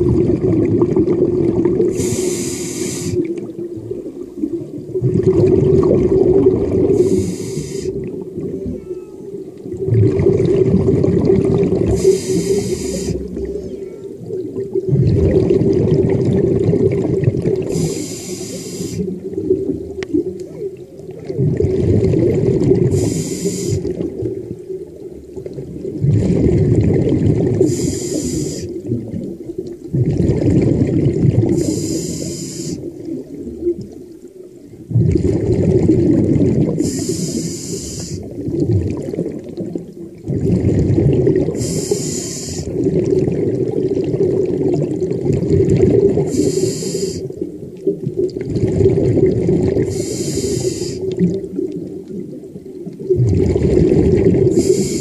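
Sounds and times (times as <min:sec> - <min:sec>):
underwater water and bubbles gurgle: 0:00.0 - 0:55.0
diver breathing hiss: 0:01.9 - 0:03.3, 0:07.0 - 0:08.0, 0:11.9 - 0:13.4, 0:17.7 - 0:19.2, 0:22.9 - 0:24.0, 0:27.6 - 0:28.8, 0:31.5 - 0:32.9, 0:36.8 - 0:38.3, 0:41.6 - 0:42.8, 0:46.3 - 0:47.3, 0:49.8 - 0:51.2, 0:54.5 - 0:55.0.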